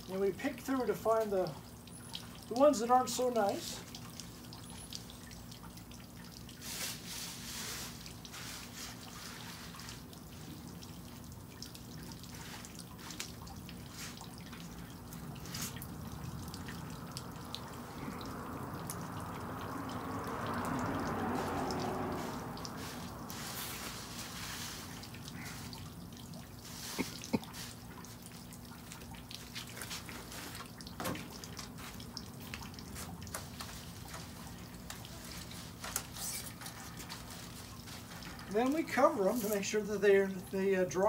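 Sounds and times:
broad rushing noise: 15.6s - 25.7s
leaves clicking and rustling: 28.9s - 40.6s.

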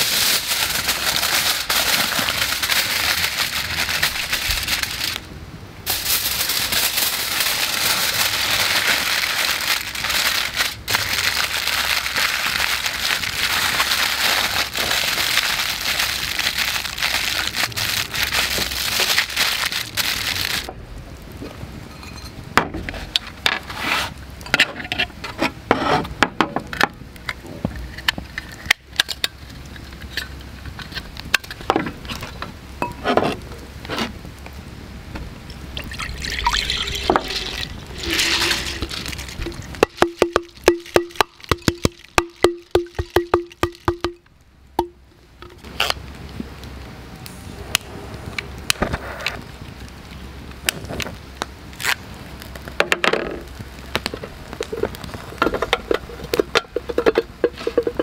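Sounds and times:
aluminium foil crinkling: 0.0s - 5.3s, 5.9s - 20.8s, 35.7s - 44.2s, 50.8s - 52.8s
crackling wood fire: 0.0s - 58.0s
rice grains pattering into water: 35.7s - 44.2s.

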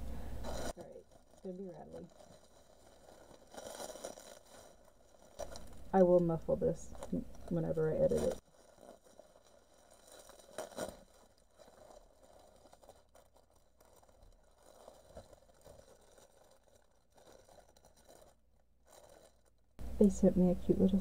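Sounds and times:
plastic packaging crinkling: 0.2s - 19.7s.

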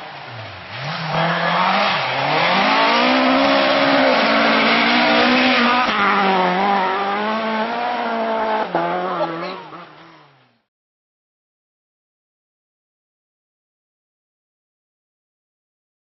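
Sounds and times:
rally car engine revving: 0.0s - 10.6s.

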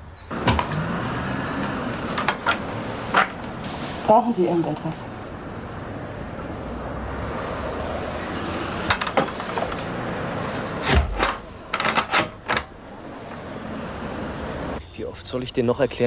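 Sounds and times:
steady background hiss: 0.0s - 16.0s
sharp knocks and clunks: 0.3s - 1.0s, 1.6s - 3.7s, 8.7s - 13.4s.

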